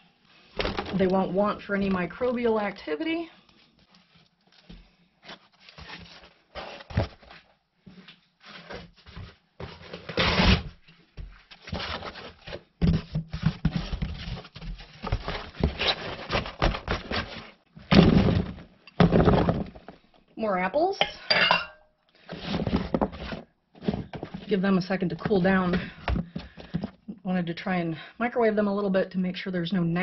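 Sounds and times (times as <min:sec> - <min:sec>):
cardboard rustling and scraping: 0:03.7 - 0:07.6, 0:08.4 - 0:20.0, 0:22.2 - 0:24.6.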